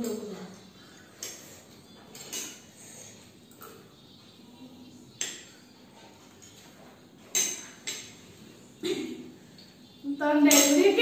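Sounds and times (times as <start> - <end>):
cutlery clinking on plates: 0.0 - 4.2, 5.1 - 9.9, 10.5 - 11.0.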